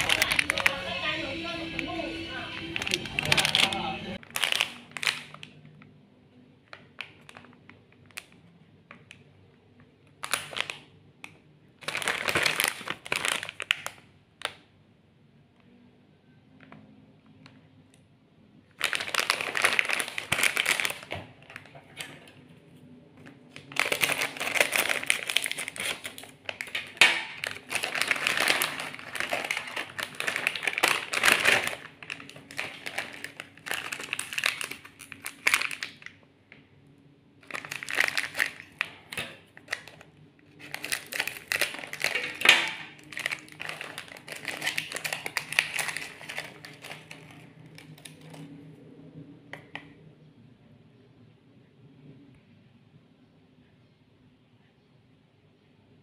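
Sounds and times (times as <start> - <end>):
plastic wrappers crinkling: 0.0 - 5.9, 6.6 - 14.7, 18.7 - 36.6, 37.4 - 48.6.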